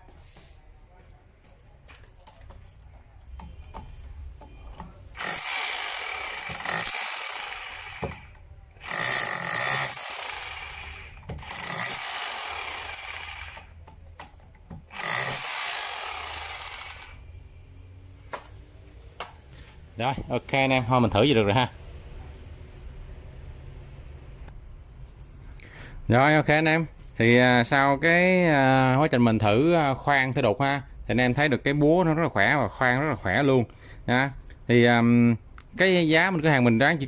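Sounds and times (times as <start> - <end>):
rotary hammer chiselling concrete: 5.2 - 14.0, 14.7 - 17.2.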